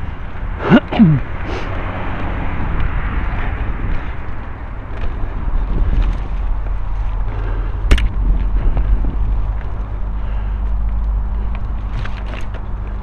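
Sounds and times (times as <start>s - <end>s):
wind on microphone: 0.0s - 10.2s
bike tyres on trail: 0.0s - 13.0s
low rumble: 0.0s - 13.0s
bike clicks and rattles: 2.2s - 13.0s.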